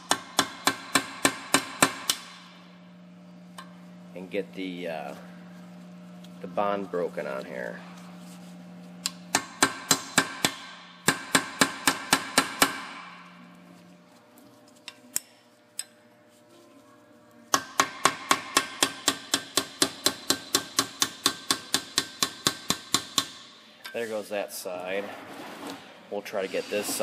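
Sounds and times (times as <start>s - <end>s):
hammer tapping chisel on metal: 17.5s - 23.4s.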